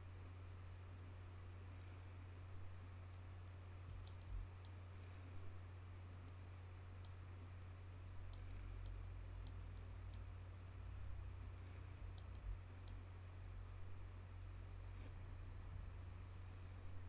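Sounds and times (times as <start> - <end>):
low electrical hum: 0.0 - 17.0
computer mouse clicking: 4.0 - 4.8, 8.3 - 10.3, 12.1 - 13.0.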